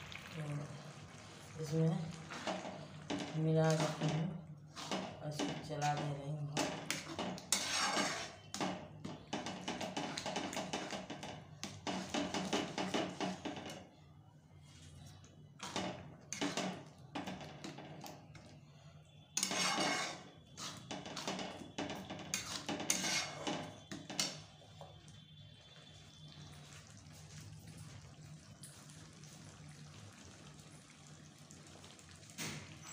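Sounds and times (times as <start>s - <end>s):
metal spatula scraping metal pan: 2.2s - 13.8s, 15.6s - 18.1s, 19.3s - 24.6s.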